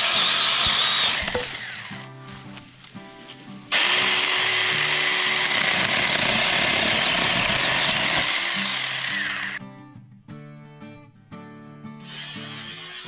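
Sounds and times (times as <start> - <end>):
mini chainsaw cutting stem: 0.0 - 2.5, 3.7 - 9.6, 12.0 - 13.0.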